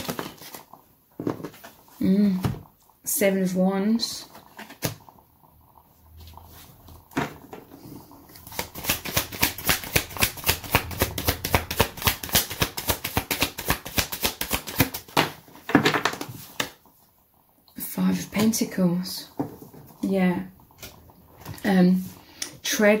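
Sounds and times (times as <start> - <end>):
cards shuffling: 8.5 - 15.0.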